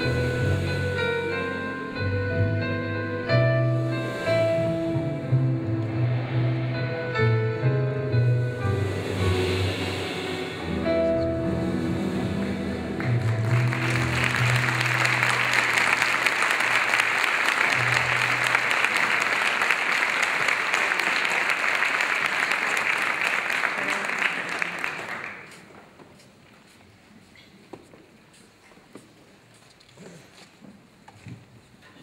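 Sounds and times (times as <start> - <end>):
band playing sustained low notes: 0.0 - 16.1
audience applause: 12.3 - 25.9.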